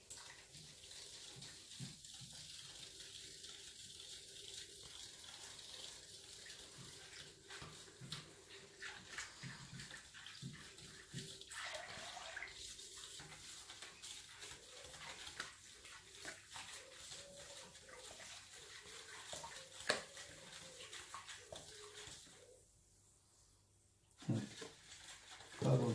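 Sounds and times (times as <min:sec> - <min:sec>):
liquid sloshing: 0:05.4 - 0:22.6.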